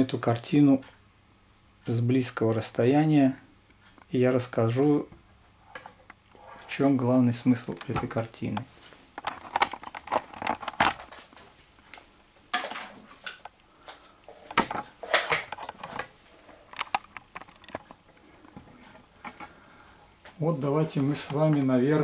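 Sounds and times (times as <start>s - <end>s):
camera handling noise: 16.7s - 18.0s.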